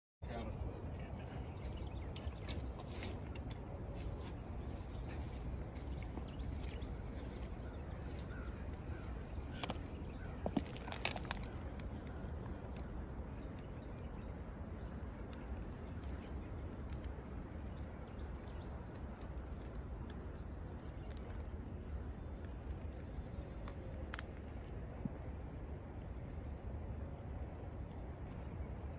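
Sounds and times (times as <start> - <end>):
wind rumbling on microphone: 0.2 - 28.9
sharp clicks or crunches: 10.5 - 11.9.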